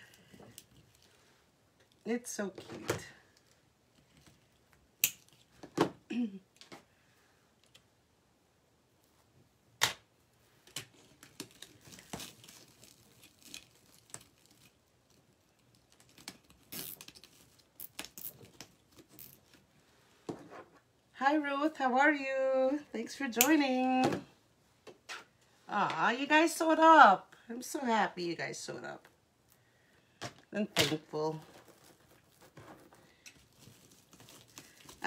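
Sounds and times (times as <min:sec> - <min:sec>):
mesh rustling and crinkling: 0:10.5 - 0:20.8, 0:31.0 - 0:35.0.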